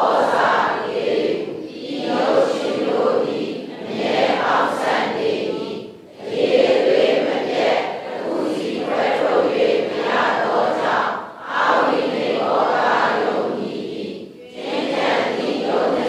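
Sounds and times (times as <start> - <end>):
class reading aloud in unison: 0.0 - 16.0.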